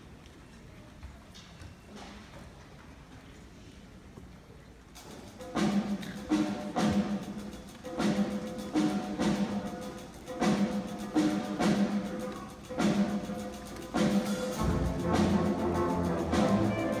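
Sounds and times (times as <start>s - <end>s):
concert band playing: 5.1s - 17.0s
loud drum strikes: 14.0s - 17.0s.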